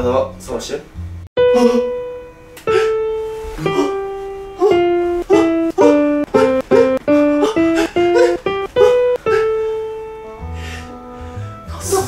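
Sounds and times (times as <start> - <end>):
plucked string notes: 1.4 - 11.0.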